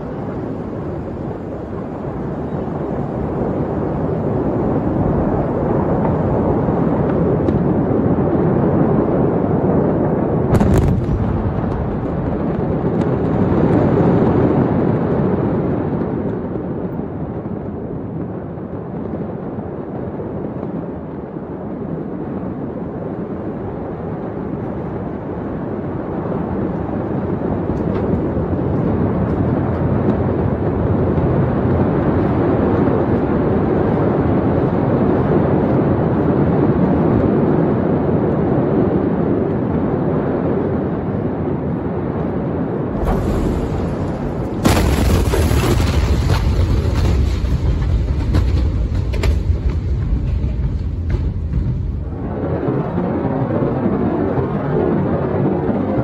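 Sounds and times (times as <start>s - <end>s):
fire rumbling roar: 0.0s - 56.0s.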